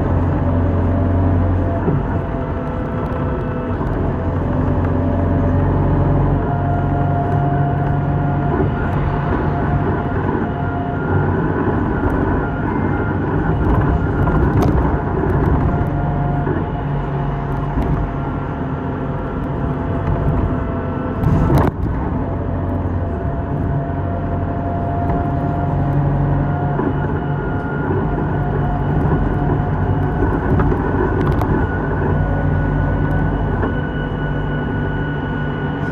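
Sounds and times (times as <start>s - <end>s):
bus diesel engine hum: 0.0s - 35.9s
road noise: 0.0s - 35.9s
steady whining tone: 0.0s - 35.9s.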